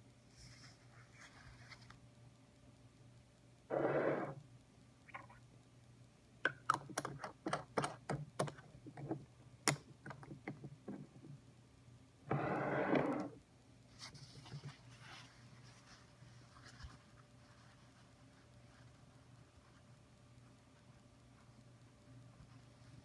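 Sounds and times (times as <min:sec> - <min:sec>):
small sharp clicks and taps: 0:06.4 - 0:11.4.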